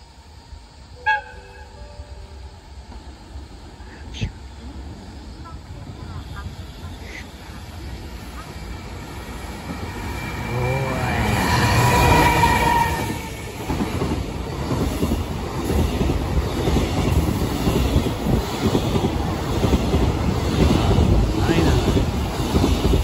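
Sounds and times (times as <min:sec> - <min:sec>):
electric locomotive whine: 0:00.0 - 0:23.0
wheels clickety-clack on rails: 0:05.4 - 0:23.0.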